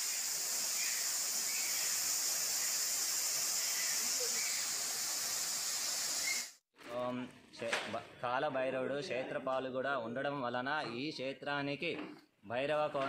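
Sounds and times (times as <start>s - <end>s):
faint high chirps: 0.0s - 5.2s.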